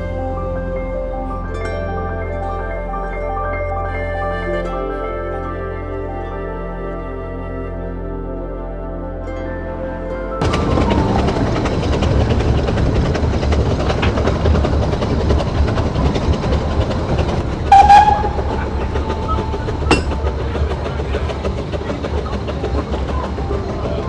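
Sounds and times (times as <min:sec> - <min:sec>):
train running rumble: 0:10.4 - 0:24.0
wheels clicking over rail joints: 0:10.4 - 0:24.0
steam whistle: 0:17.6 - 0:20.1
sharp clank: 0:19.9 - 0:20.3.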